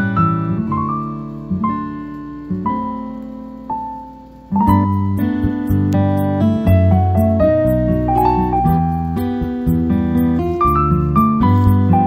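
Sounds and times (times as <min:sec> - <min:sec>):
soft piano melody: 0:00.0 - 0:12.0
drum and bass beat: 0:04.6 - 0:12.0.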